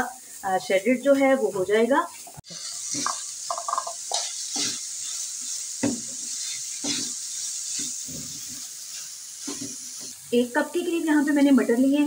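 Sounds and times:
food sizzling in a frying pan: 0:00.0 - 0:12.0
spatula scraping a pan: 0:02.4 - 0:10.2.

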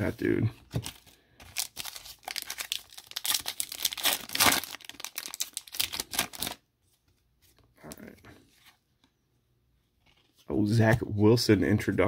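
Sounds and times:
foil wrapper crinkling: 0:01.5 - 0:06.6.

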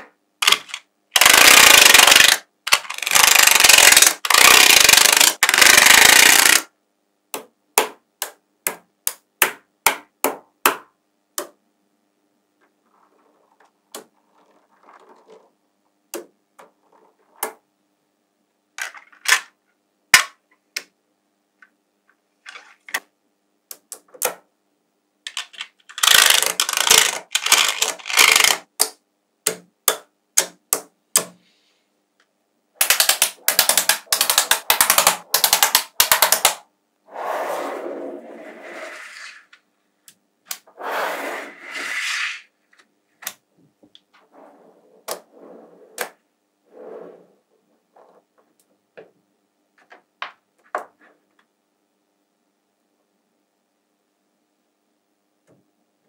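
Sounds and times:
magnet balls clicking together: 0:00.4 - 0:06.7, 0:25.3 - 0:31.3, 0:32.8 - 0:36.6
rapid clatter of magnet balls: 0:00.4 - 0:06.7, 0:25.3 - 0:28.7, 0:32.8 - 0:36.6.

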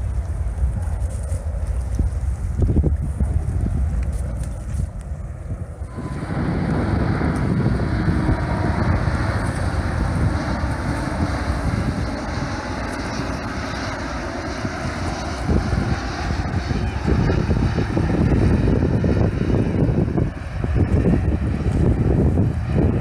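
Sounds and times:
jet engines roaring: 0:00.0 - 0:23.0
wind buffeting microphone: 0:00.0 - 0:23.0.

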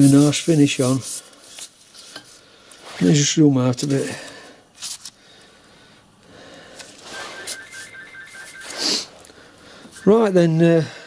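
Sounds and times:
faint high beeping tone: 0:07.0 - 0:11.0.

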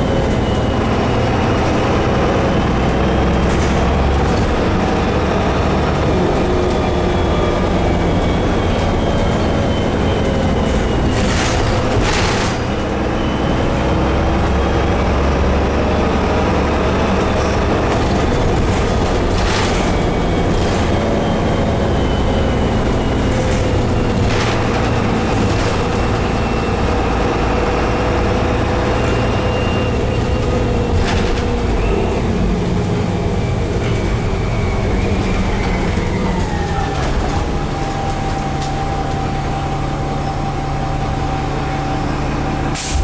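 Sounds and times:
bus engine whining: 0:00.0 - 0:43.0
bus body knocks and rattles: 0:00.3 - 0:13.2, 0:16.7 - 0:38.8.

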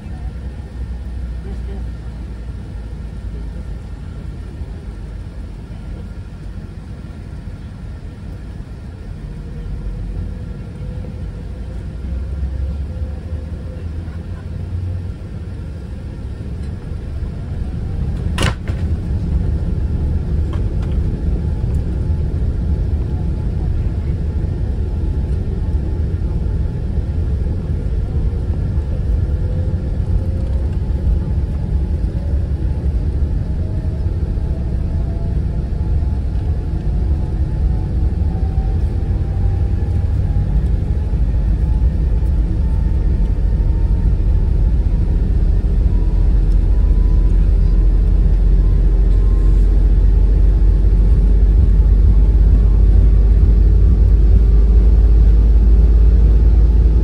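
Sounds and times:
airliner cabin engine rumble: 0:00.0 - 0:57.0
faint rising whine: 0:14.6 - 0:57.0.

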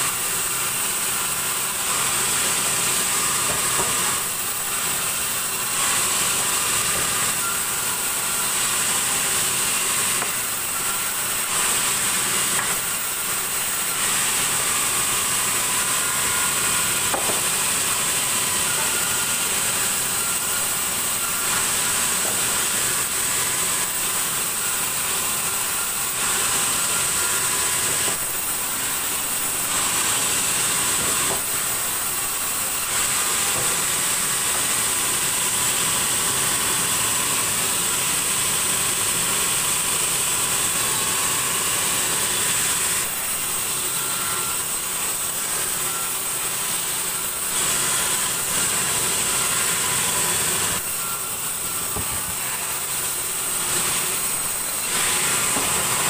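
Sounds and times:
band saw cutting log: 0:00.0 - 0:56.0.

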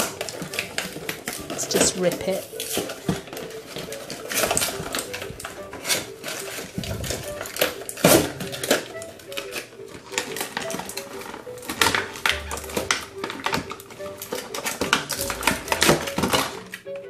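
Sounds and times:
plastic window crinkling: 0:00.0 - 0:17.0.

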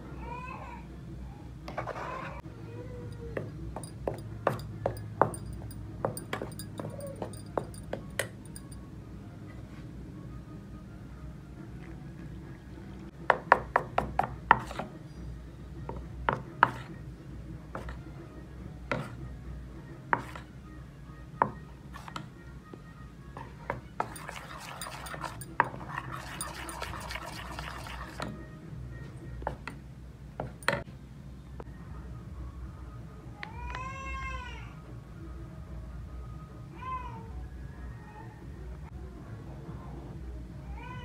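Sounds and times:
metal spoon clinking in steel bowl: 0:03.2 - 0:08.8, 0:24.0 - 0:28.3
wet batter stirring: 0:03.4 - 0:08.8, 0:13.6 - 0:15.0, 0:23.4 - 0:28.4.

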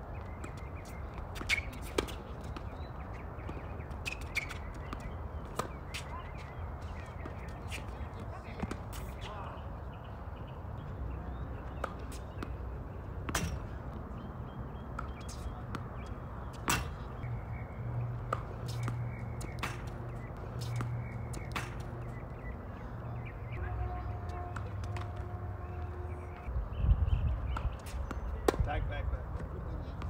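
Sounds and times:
tennis ball bouncing on court: 0:00.4 - 0:09.3, 0:11.6 - 0:14.0, 0:14.7 - 0:17.3, 0:17.9 - 0:22.4, 0:24.3 - 0:25.9, 0:27.5 - 0:28.7
rackets hitting tennis ball: 0:00.4 - 0:09.4, 0:11.7 - 0:14.0, 0:14.8 - 0:17.4, 0:18.0 - 0:22.6, 0:24.3 - 0:26.5.

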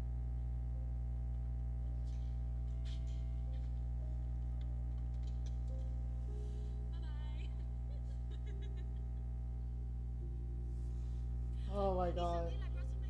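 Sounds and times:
low electrical hum: 0:00.0 - 0:13.0
girls laughing: 0:07.4 - 0:09.6.

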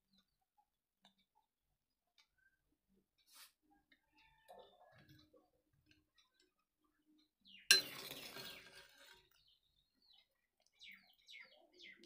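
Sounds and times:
food and water tipped into metal pan: 0:07.7 - 0:08.6.

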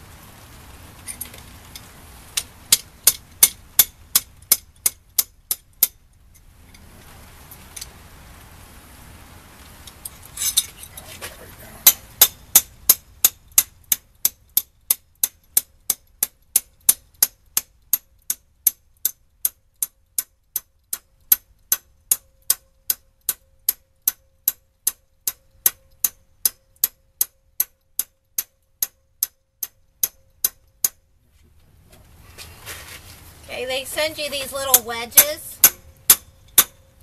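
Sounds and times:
sharp steady ticking: 0:01.1 - 0:06.8, 0:11.5 - 0:31.2, 0:33.5 - 0:37.0.

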